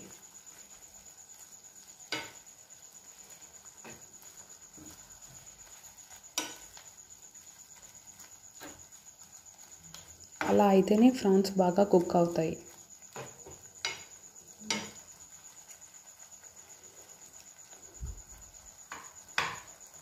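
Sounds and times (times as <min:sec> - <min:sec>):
prawns sizzling in a pan: 0:00.0 - 0:20.0
spatula knocking against pan: 0:13.2 - 0:14.1, 0:18.9 - 0:19.7.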